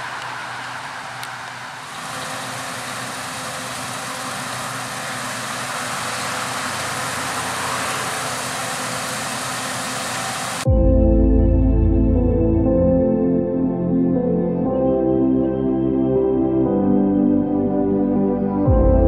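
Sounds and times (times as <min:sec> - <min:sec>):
combine harvester running: 0:00.0 - 0:10.7
tractor running: 0:00.0 - 0:10.7.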